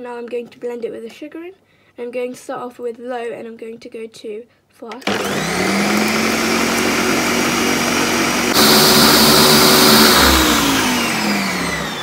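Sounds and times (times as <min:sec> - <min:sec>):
blender motor running: 0:05.0 - 0:12.0.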